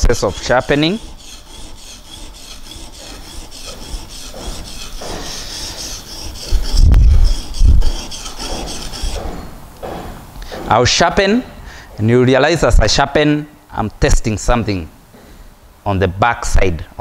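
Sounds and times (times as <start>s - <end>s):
chisel scraping on sharpening stone: 0.0s - 9.6s.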